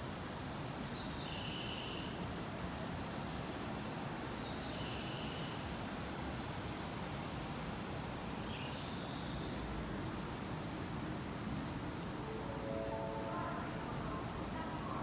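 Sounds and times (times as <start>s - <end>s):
two-note station chime: 12.2s - 13.8s
platform background noise: 12.2s - 15.0s.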